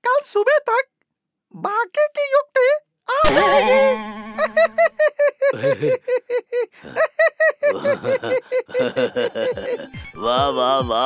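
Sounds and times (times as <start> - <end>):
cartoon voices laughing: 4.4 - 10.0.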